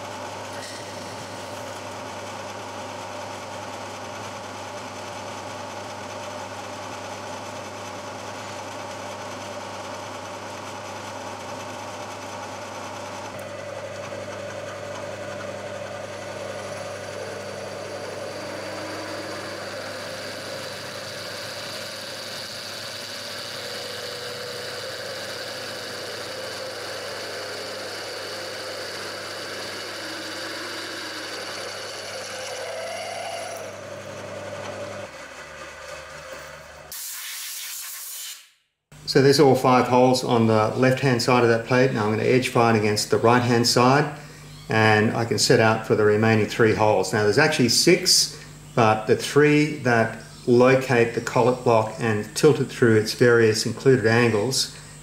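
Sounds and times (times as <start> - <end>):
milling machine spindle running: 0.0 - 37.0
drill cutting through steel: 0.5 - 2.0, 13.7 - 38.5.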